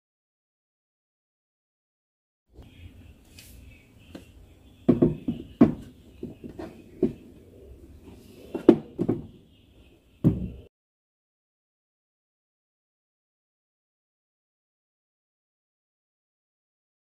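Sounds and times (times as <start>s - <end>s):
objects knocking on a wooden shelf: 4.9s - 7.3s, 8.5s - 9.4s, 10.2s - 10.7s.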